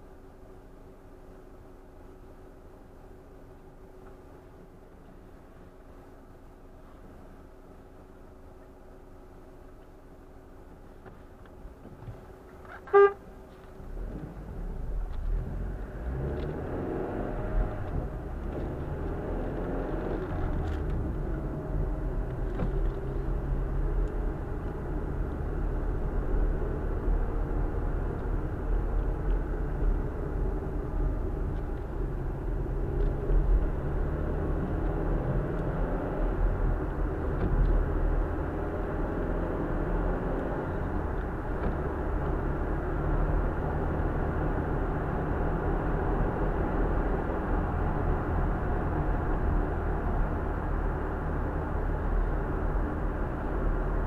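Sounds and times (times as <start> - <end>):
car engine and tyre noise: 0.0 - 54.0
car horn toot: 12.7 - 13.3.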